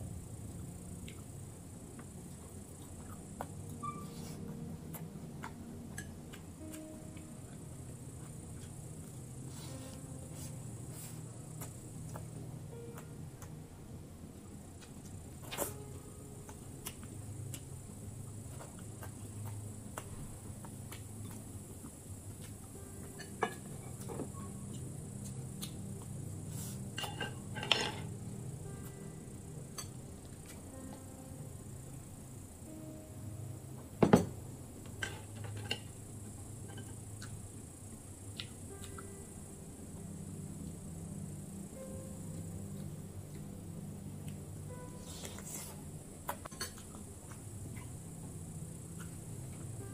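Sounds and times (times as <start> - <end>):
low steady hum: 0.0 - 49.9
glass mug knocking on table: 34.0 - 34.3.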